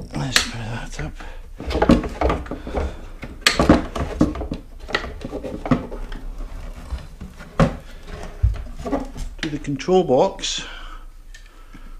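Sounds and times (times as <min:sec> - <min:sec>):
knocks and clatter of plastic and metal: 0:01.6 - 0:09.7.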